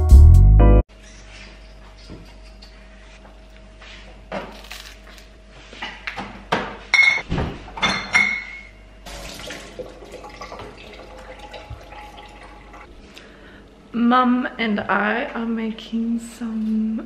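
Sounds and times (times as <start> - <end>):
dishes knocking and clinking: 6.2 - 8.7.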